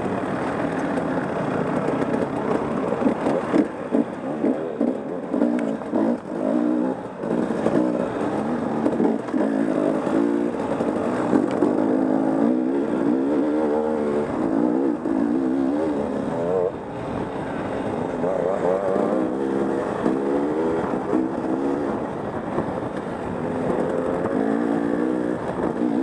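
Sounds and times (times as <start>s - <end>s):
dirt bike engine revving: 3.0s - 16.9s, 18.1s - 22.2s, 23.4s - 26.0s.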